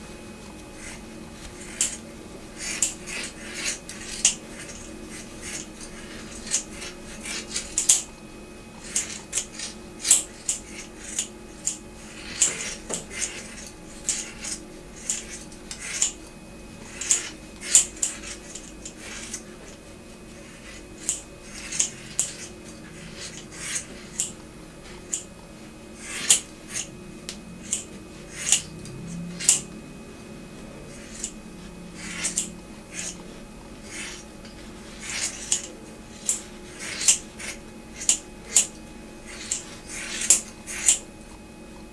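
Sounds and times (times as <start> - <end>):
scissors snipping: 23.1 - 24.4, 25.0 - 25.3, 26.0 - 29.7, 30.9 - 31.4, 32.0 - 33.2, 35.0 - 41.0.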